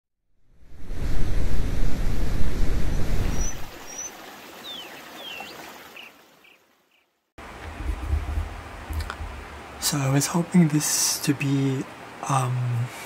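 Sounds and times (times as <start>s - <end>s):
steady rushing noise: 7.4s - 10.6s.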